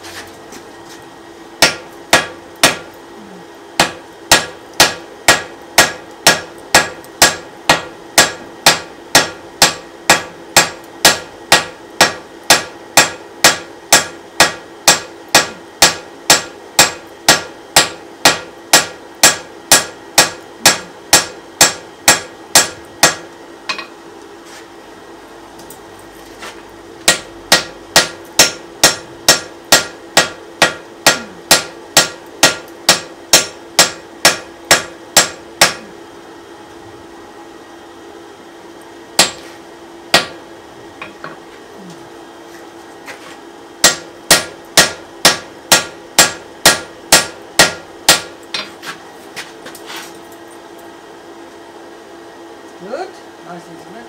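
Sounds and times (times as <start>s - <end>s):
hammer striking hot iron on anvil: 1.6s - 3.0s, 3.8s - 24.0s, 27.0s - 36.0s, 39.2s - 39.5s, 40.1s - 40.4s, 43.8s - 48.8s.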